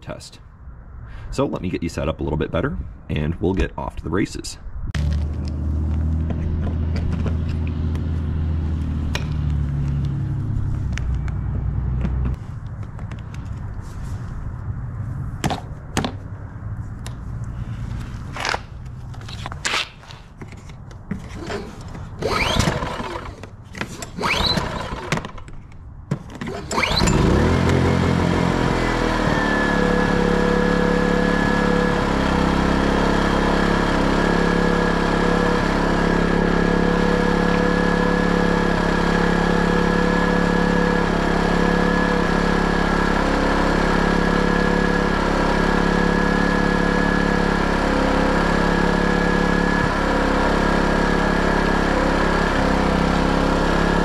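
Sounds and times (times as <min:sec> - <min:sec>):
generator engine running: 0:05.0 - 0:14.2, 0:21.2 - 0:25.4, 0:26.4 - 0:54.0.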